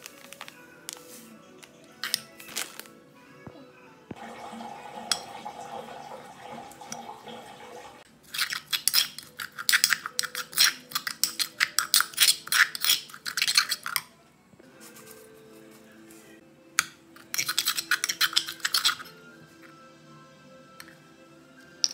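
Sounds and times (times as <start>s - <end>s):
metal spoon scraping stone mortar: 8.3s - 14.1s, 17.2s - 19.2s.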